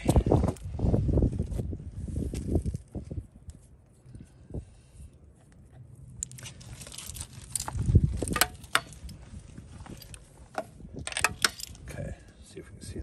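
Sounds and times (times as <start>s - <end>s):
crunching on gravel: 6.1s - 10.5s.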